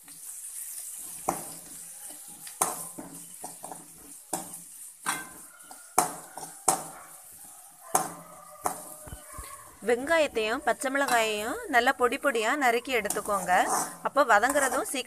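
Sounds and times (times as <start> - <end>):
soft sizzle of frying: 0.0 - 15.0
spatula scraping metal pan: 0.2 - 15.0
spatula knocking against pan: 6.0 - 6.9, 7.9 - 9.3.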